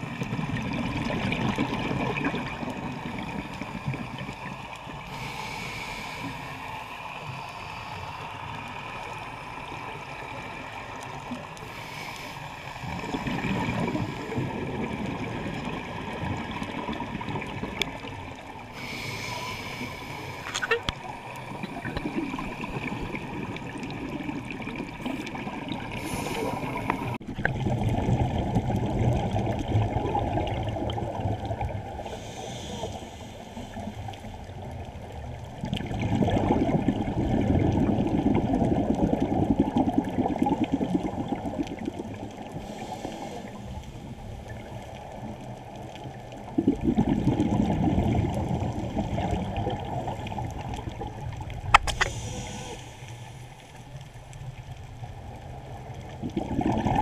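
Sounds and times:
diver's exhaled air bubbling: 18.7s - 33.6s, 35.8s - 44.8s, 46.4s - 53.2s, 56.1s - 57.0s.

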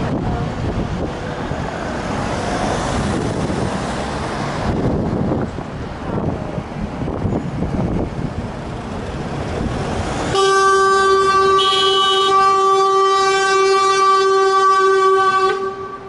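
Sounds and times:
road traffic: 0.0s - 16.0s
wind rumble: 0.0s - 16.0s
steady horn blast: 10.3s - 16.0s.

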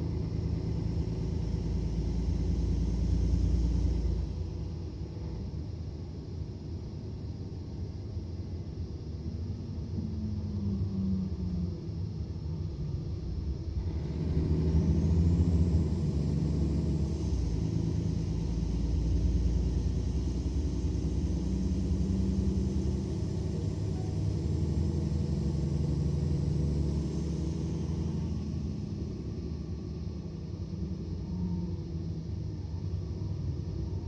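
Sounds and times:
bus diesel engine rumbling: 0.0s - 34.0s
high engine whine: 0.0s - 34.0s.

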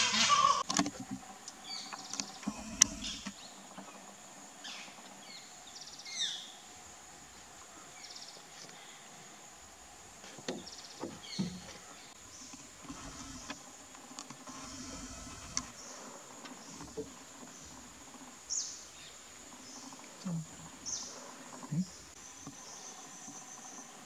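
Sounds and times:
short bird calls: 0.0s - 0.6s, 2.3s - 3.4s
high insect drone: 0.0s - 24.0s.

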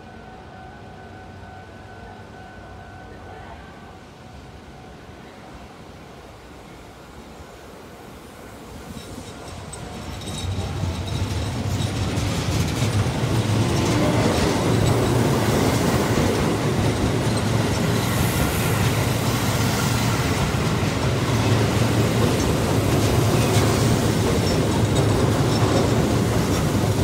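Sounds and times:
train wheels rumbling on rails: 8.4s - 27.0s.

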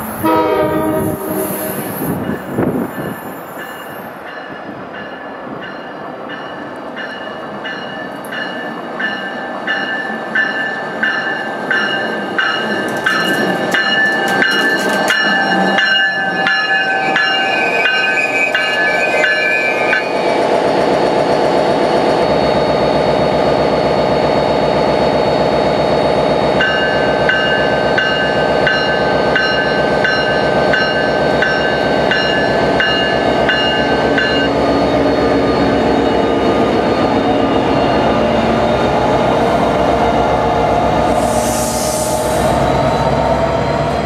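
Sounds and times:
locomotive bell ringing: 2.1s - 20.2s, 26.5s - 39.3s
diesel locomotive engine running: 11.6s - 44.0s.

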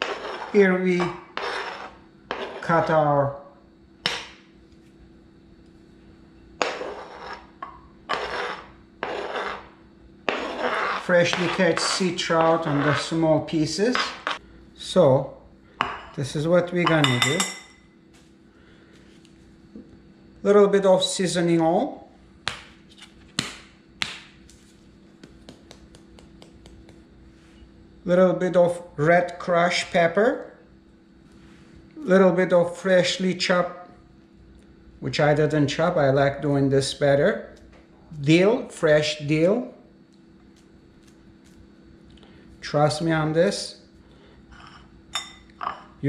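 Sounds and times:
spoon scraping cutting board: 0.0s - 2.9s, 6.6s - 13.2s, 44.6s - 45.3s.

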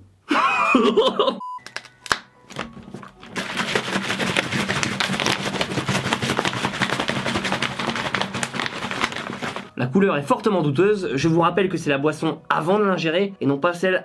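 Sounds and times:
test-tone beep: 1.4s - 2.1s
liquid sloshing in shaken bottle: 2.5s - 9.7s.

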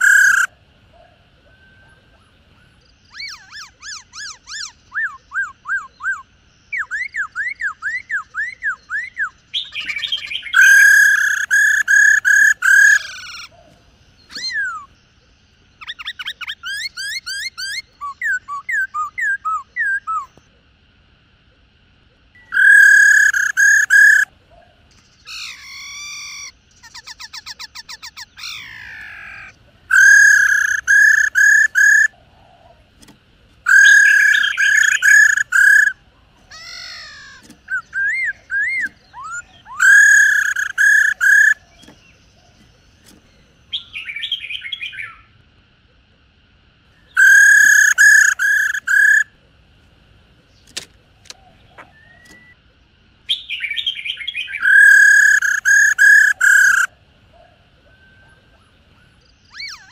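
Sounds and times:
bird rattling calls: 0.0s - 0.5s, 9.6s - 14.9s, 22.4s - 24.3s, 24.9s - 43.5s, 47.2s - 49.3s, 54.6s - 56.9s
bird trills and whistles: 0.0s - 0.5s, 3.0s - 15.0s, 15.8s - 20.4s, 22.4s - 24.3s, 25.0s - 32.1s, 33.7s - 45.3s, 47.0s - 49.3s, 51.4s - 52.6s, 53.3s - 56.9s, 57.9s - 59.9s.

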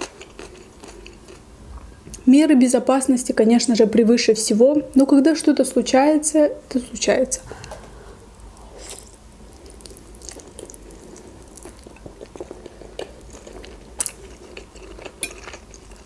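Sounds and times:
woman chewing and slurping noodles: 8.6s - 16.0s.

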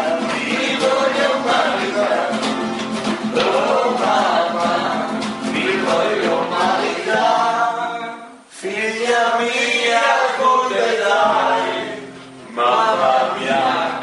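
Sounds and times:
people singing in chorus: 0.0s - 14.0s.

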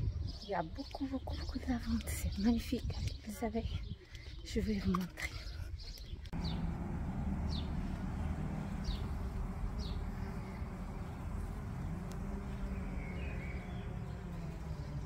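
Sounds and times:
bees buzzing: 6.4s - 15.0s
high bird chirps: 6.4s - 15.0s.

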